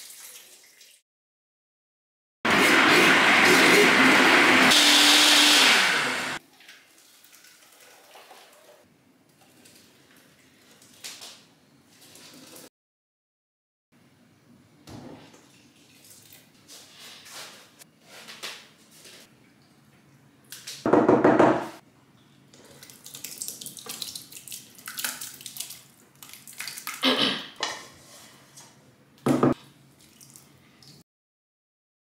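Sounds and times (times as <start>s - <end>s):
liquid pouring and splashing into pot: 6.4s - 8.8s, 22.5s - 27.0s, 29.6s - 31.0s.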